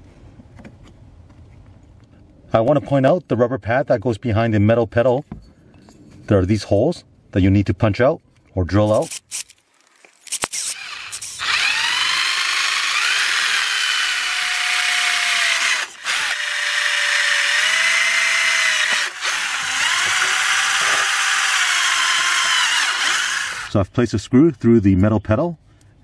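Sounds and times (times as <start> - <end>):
cordless drill motor whine: 10.2 - 23.8.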